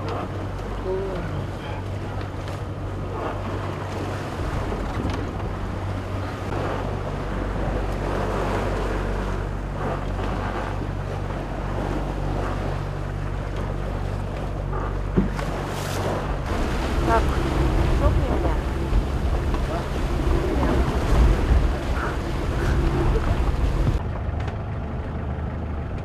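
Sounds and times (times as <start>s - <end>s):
wind buffeting microphone: 0.0s - 24.0s
steady low rumble: 0.0s - 26.0s
water splashing along hull: 0.0s - 26.0s.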